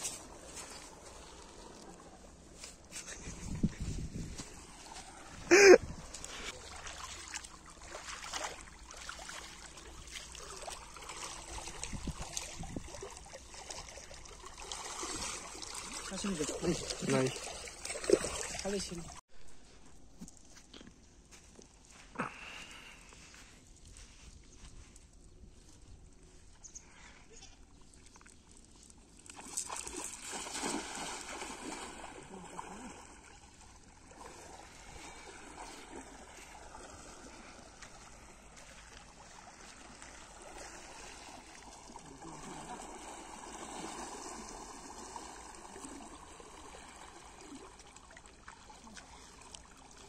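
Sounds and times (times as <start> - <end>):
river water trickling: 0.0 - 2.9, 3.6 - 19.2, 20.1 - 50.0
net splashing through water: 4.6 - 19.2, 29.2 - 50.0.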